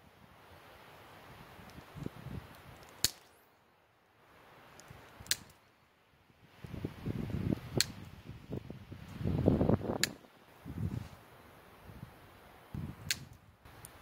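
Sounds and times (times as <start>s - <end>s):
wind rumble on microphone: 1.4s - 2.8s, 6.3s - 11.2s, 11.8s - 13.5s
snippers snipping shoots: 2.8s - 3.4s, 4.7s - 5.6s, 7.8s - 8.1s, 9.9s - 10.3s, 13.0s - 14.0s.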